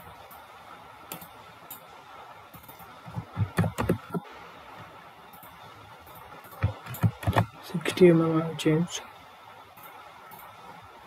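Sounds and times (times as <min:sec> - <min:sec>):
keyboard keystrokes and clicks: 0:01.1 - 0:01.8, 0:02.6 - 0:04.2, 0:05.4 - 0:08.0.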